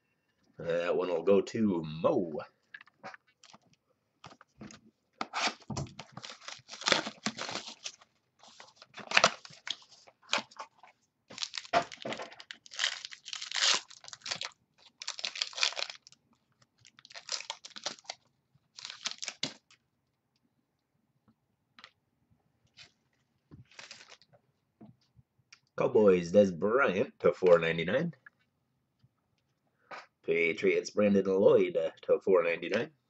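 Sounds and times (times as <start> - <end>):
plastic wrapping tearing and crinkling: 5.3 - 10.6, 11.3 - 19.8, 23.7 - 24.2.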